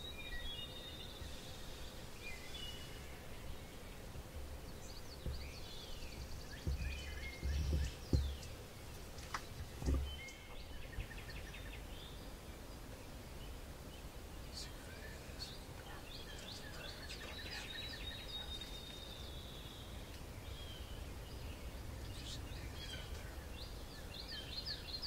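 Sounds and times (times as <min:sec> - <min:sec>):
songbirds chirping: 0:00.0 - 0:25.0
low rumbles on microphone: 0:04.5 - 0:08.6.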